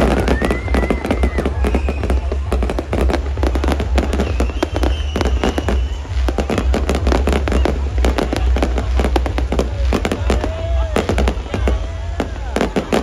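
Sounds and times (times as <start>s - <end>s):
high firework whistle: 0.0s - 2.6s, 3.6s - 8.0s
fireworks crackling and booming: 0.0s - 13.0s.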